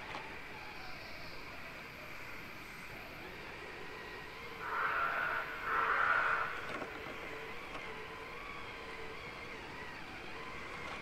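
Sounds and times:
toy car electric motor whining: 0:03.2 - 0:11.0.

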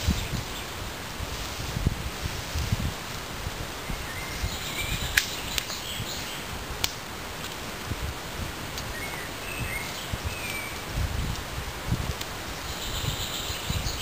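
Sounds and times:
leafy branches rustling: 0:00.0 - 0:14.0
twigs snapping: 0:05.1 - 0:05.8, 0:06.8 - 0:07.6.

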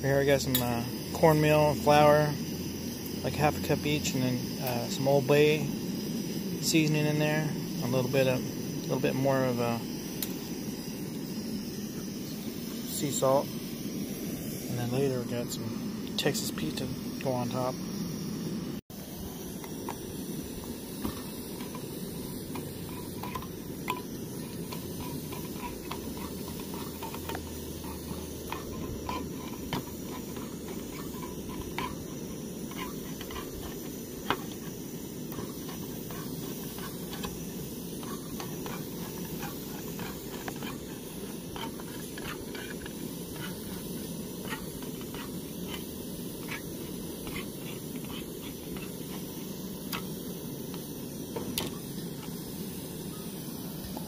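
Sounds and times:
steady low hiss: 0:00.0 - 0:54.0
can opener clicking around tin rim: 0:00.4 - 0:01.7, 0:10.2 - 0:10.4, 0:21.0 - 0:52.4.

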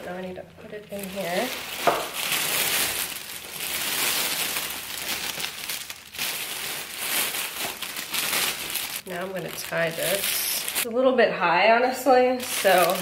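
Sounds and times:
cellophane bag crinkling: 0:00.8 - 0:10.9, 0:12.4 - 0:13.0.

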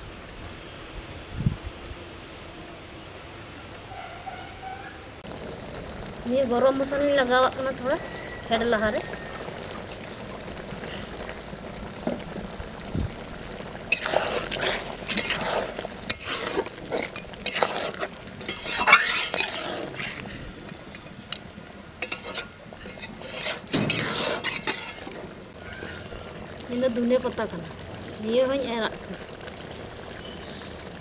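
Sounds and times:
curry simmering sizzle: 0:05.1 - 0:31.0
spoon scraping metal pan: 0:13.9 - 0:25.2.

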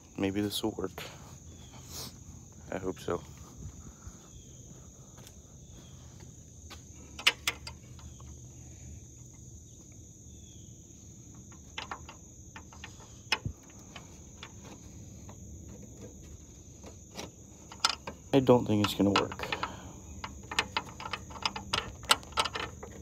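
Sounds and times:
crickets chirping: 0:00.0 - 0:23.0
sharp clicks and knocks: 0:07.2 - 0:08.4, 0:11.3 - 0:23.0.

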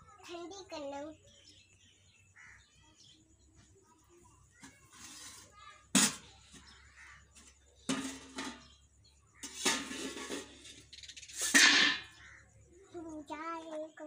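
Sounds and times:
steel pots and lid clattering: 0:04.7 - 0:06.7, 0:07.3 - 0:12.2.

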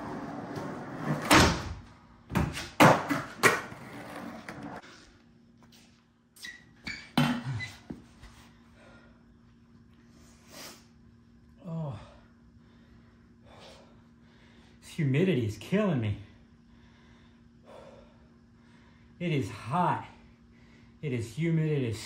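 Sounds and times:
skateboard wheels rolling on concrete: 0:00.0 - 0:01.6, 0:02.5 - 0:05.0
skateboard clacks: 0:02.5 - 0:04.8
low steady hum: 0:07.2 - 0:22.0.

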